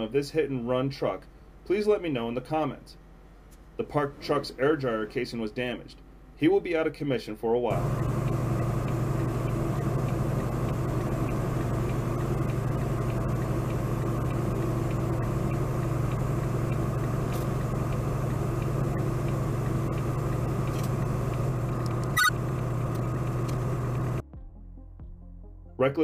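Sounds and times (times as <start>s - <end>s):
truck engine and road drone: 7.7s - 24.2s
short high-pitched sound: 22.2s - 22.4s.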